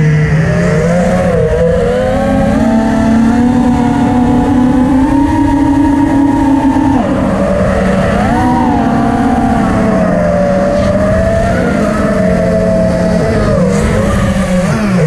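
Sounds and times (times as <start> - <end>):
quadcopter motors whining: 0.0 - 15.0.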